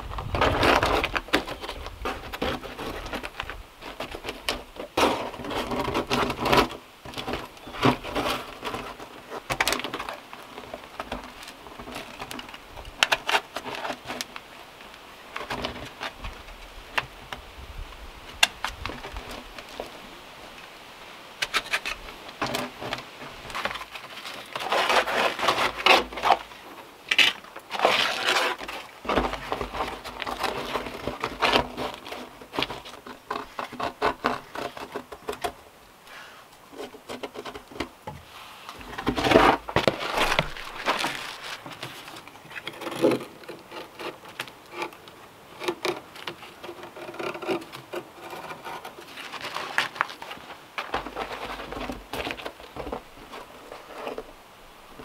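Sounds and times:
tool scraping and rasping wood: 0:21.4 - 0:26.6, 0:27.2 - 0:35.4, 0:36.1 - 0:54.4.

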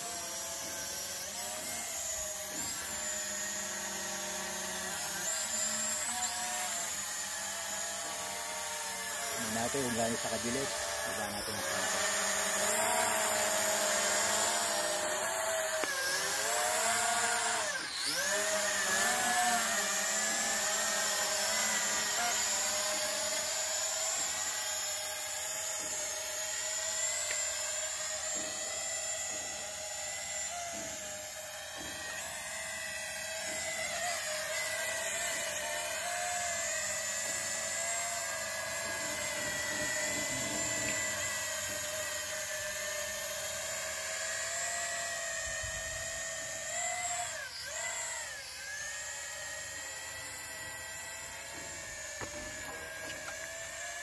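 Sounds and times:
toy drone propellers whining: 0:00.0 - 0:54.0.

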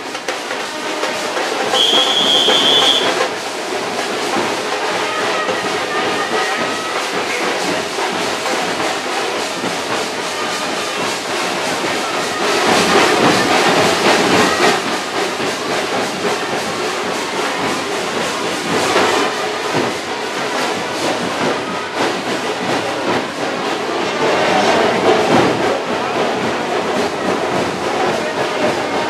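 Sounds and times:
crowd voices and movement: 0:00.0 - 0:29.0
short high whistle-like tone: 0:01.7 - 0:03.2.

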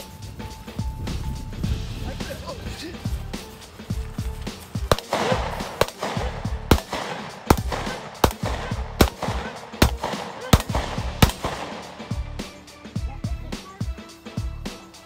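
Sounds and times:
gunshots: 0:04.7 - 0:12.8.

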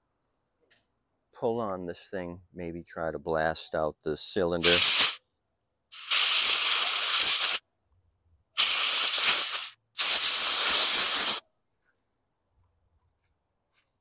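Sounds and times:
compressed air hissing: 0:04.6 - 0:05.2, 0:05.9 - 0:07.6, 0:08.6 - 0:11.4.

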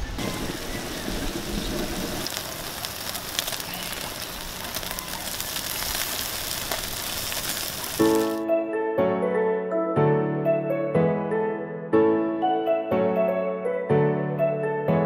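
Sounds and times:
meat sizzling on grill: 0:00.2 - 0:08.4
piano music: 0:07.9 - 0:15.0.

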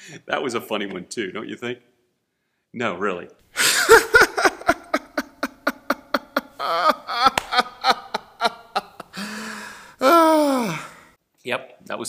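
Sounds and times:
man laughing hard: 0:03.6 - 0:10.6.

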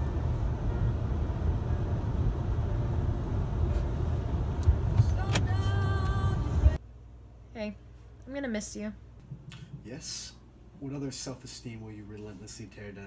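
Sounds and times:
car cabin rumble: 0:00.0 - 0:06.8.

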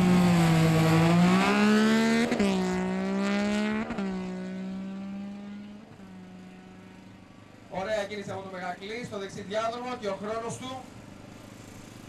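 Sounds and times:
motorcycle engine accelerating hard: 0:00.0 - 0:07.5.

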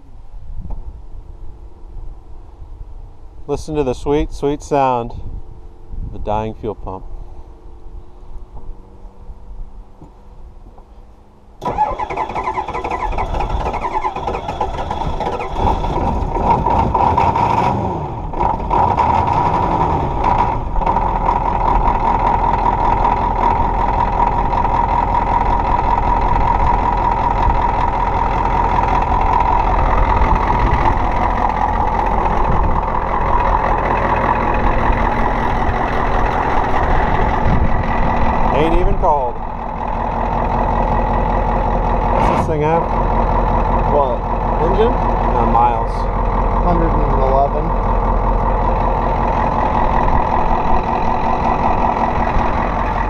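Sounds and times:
diesel engine idling: 0:11.4 - 0:17.3, 0:18.2 - 0:53.0
starter motor cranking: 0:11.6 - 0:17.6.

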